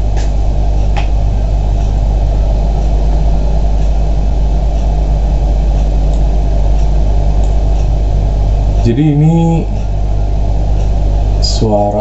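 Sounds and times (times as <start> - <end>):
microphone hum and hiss: 0.0 - 12.0.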